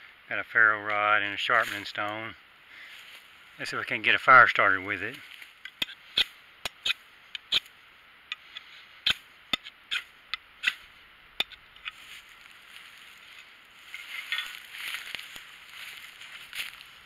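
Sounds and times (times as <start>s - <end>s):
knife scraping ferrocerium rod: 5.7s - 7.7s, 8.3s - 12.0s
tinder crackling: 9.0s - 17.0s.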